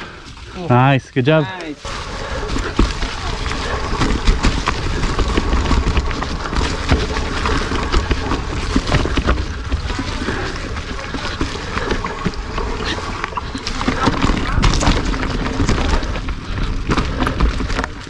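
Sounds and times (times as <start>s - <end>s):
tyres crunching through dry leaves: 0.1s - 18.0s
bike clicks and rattles: 1.5s - 18.0s.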